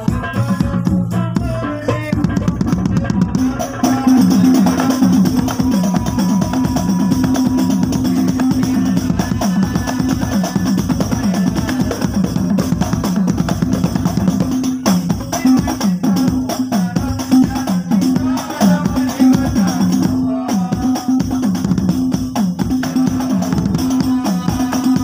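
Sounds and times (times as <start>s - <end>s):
bass drum beaten with mallet: 0.0s - 25.0s.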